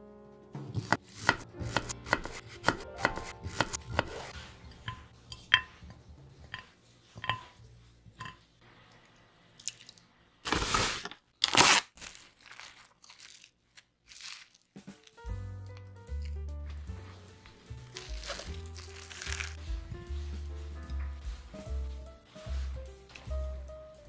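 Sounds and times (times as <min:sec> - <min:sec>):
knife chopping on wooden board: 0:00.7 - 0:05.9
plastic wrap rustling and tearing: 0:10.4 - 0:15.2, 0:17.8 - 0:19.8.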